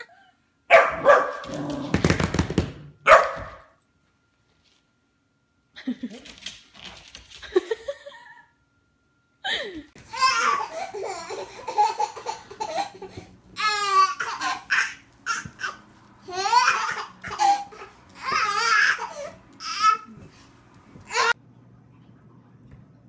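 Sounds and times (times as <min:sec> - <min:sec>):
baby laughing and babbling: 0:10.0 - 0:20.3, 0:21.0 - 0:21.4.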